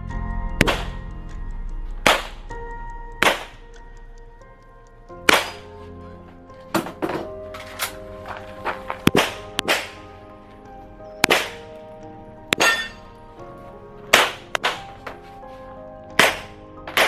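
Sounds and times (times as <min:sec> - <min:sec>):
pistol shots: 0:05.3 - 0:05.7, 0:11.2 - 0:11.6, 0:16.2 - 0:17.0
steel targets ringing: 0:05.3 - 0:05.8, 0:12.5 - 0:13.2.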